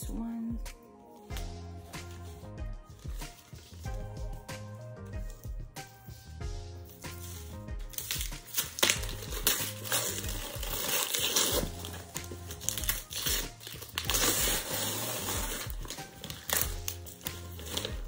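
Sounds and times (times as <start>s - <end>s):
background music with bass beat: 0.0s - 18.0s
packaging crinkling and tearing: 7.9s - 18.0s.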